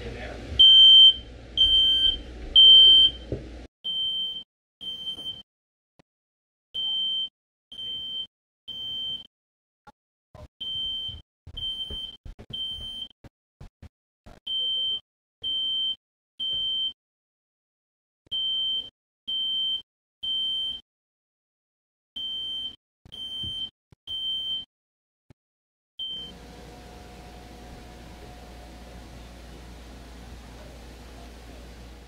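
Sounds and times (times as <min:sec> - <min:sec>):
smoke alarm beeping: 0:00.6 - 0:03.3, 0:03.9 - 0:05.4, 0:06.8 - 0:09.3, 0:10.6 - 0:13.1, 0:14.5 - 0:17.0, 0:18.3 - 0:20.8, 0:22.2 - 0:24.7, 0:26.0 - 0:26.4.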